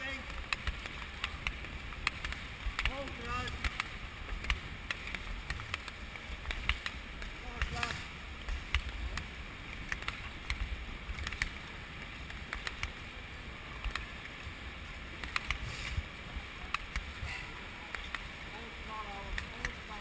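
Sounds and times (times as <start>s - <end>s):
skate blades clicking: 0.0s - 13.0s, 15.1s - 16.0s, 17.9s - 18.4s
air rushing past microphone: 15.2s - 17.6s.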